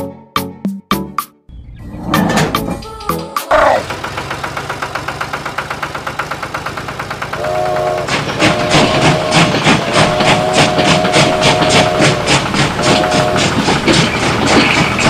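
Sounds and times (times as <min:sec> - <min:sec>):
small engine chugging: 0:03.5 - 0:15.0
train wheels clacking on rails: 0:03.6 - 0:15.0
train whistle: 0:07.3 - 0:15.0.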